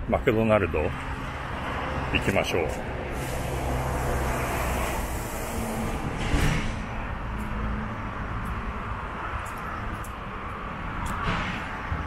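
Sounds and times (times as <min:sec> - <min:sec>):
vehicles passing: 0:00.0 - 0:12.0.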